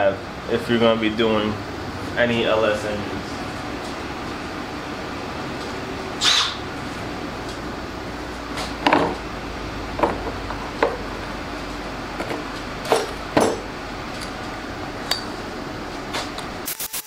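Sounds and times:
low hum: 0.0s - 16.7s
tools knocking and clinking: 8.8s - 9.2s, 10.0s - 11.0s, 12.2s - 14.3s, 15.1s - 15.3s.

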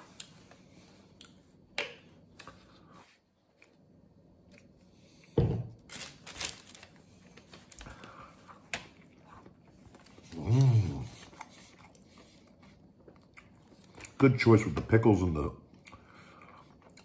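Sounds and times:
thump on table: 5.4s - 5.7s
paper wrapping rustling and tearing: 5.8s - 8.1s.

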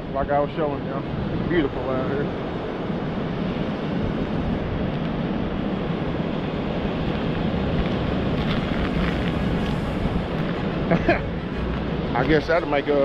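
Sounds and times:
wind noise on microphone: 0.0s - 13.0s.

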